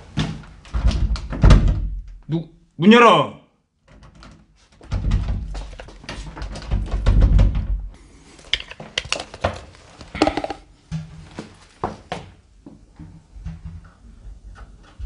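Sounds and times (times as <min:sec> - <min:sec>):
door shaking in its frame: 0:00.7 - 0:02.0, 0:03.9 - 0:07.9.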